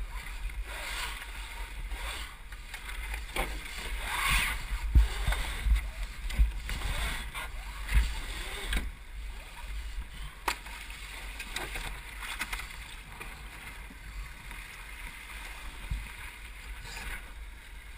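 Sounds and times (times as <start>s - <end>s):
water rushing along hull: 0.0s - 17.9s
wind rumble on microphone: 3.2s - 10.3s.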